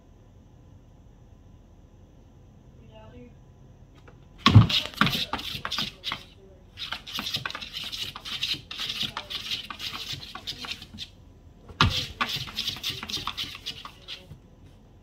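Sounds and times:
cat scratching plastic tub: 4.0s - 14.4s
loud thump on tub: 4.4s - 5.4s.

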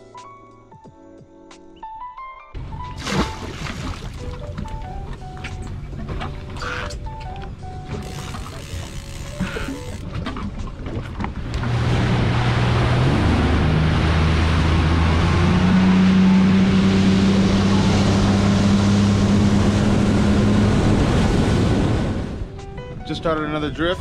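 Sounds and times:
rushing water: 2.6s - 6.9s, 7.9s - 22.4s
outboard motor running: 2.6s - 22.5s
hull slap: 2.6s - 22.6s
wind noise: 18.8s - 22.6s.

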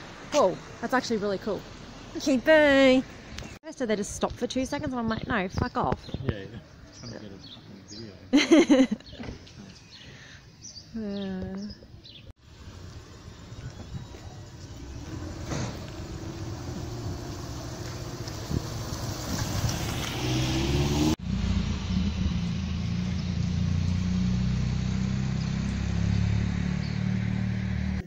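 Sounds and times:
car passing and accelerating: 12.4s - 28.0s
vehicle engine humming: 12.4s - 28.0s.

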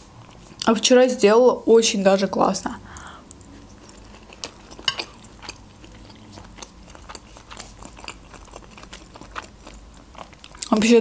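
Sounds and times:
close chewing with wet mouth clicks: 2.9s - 11.0s
food crunching: 2.9s - 11.0s.

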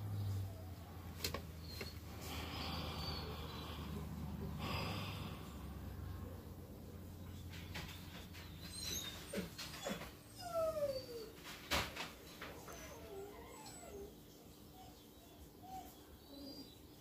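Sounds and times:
puppy whimpering: 8.5s - 11.5s, 12.4s - 17.0s.

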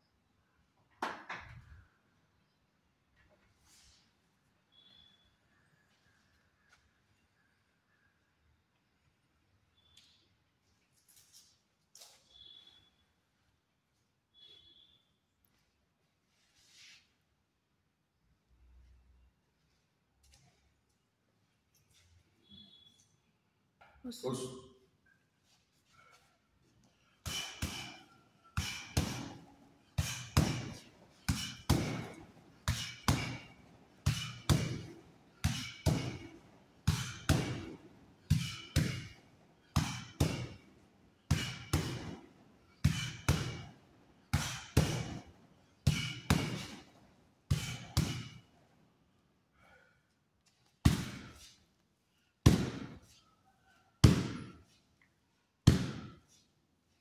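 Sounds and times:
knuckles punching sand bag: 27.3s - 28.0s, 28.6s - 40.6s, 41.3s - 43.7s, 44.3s - 46.9s, 47.5s - 48.4s, 50.8s - 51.4s, 52.4s - 53.0s, 54.0s - 54.6s, 55.6s - 56.2s.

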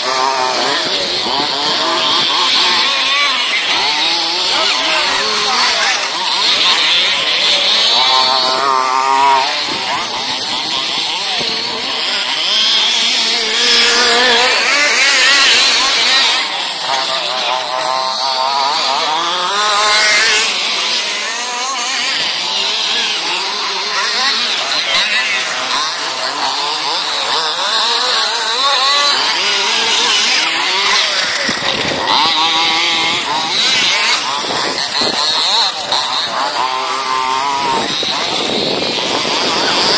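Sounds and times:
rc buggy engines buzzing and revving: 0.0s - 39.9s.

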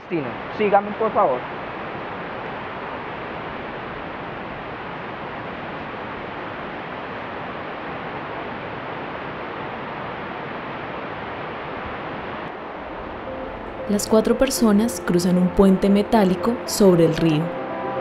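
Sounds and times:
river rushing: 0.3s - 14.3s.

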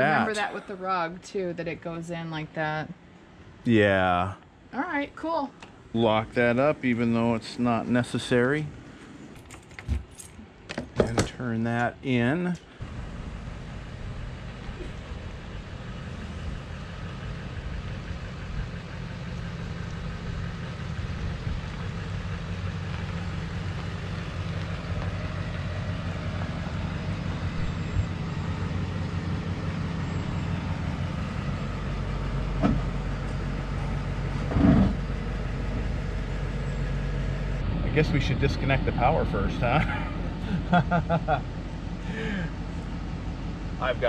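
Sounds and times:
pickup truck engine idling: 11.4s - 44.0s.

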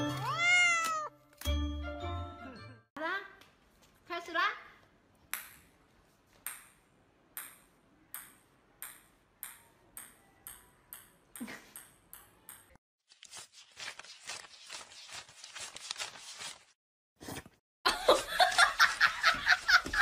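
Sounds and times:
ping-pong ball bouncing on tiles: 5.3s - 5.6s, 6.4s - 12.8s.

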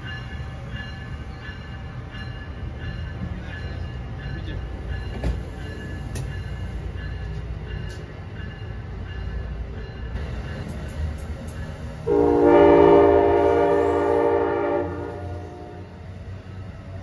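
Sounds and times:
train cars rumbling on rails: 0.0s - 17.0s
train horn blast: 12.0s - 16.1s.

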